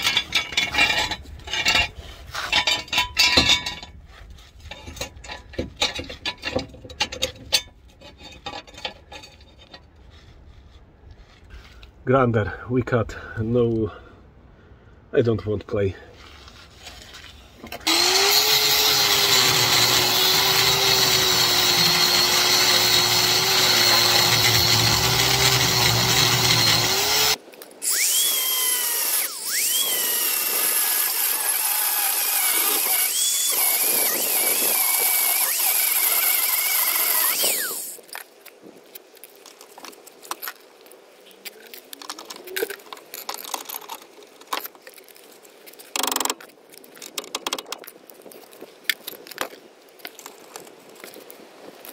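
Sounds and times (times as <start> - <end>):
angle grinder cutting metal: 17.8 - 38.0
small clicks and knocks: 41.4 - 51.9.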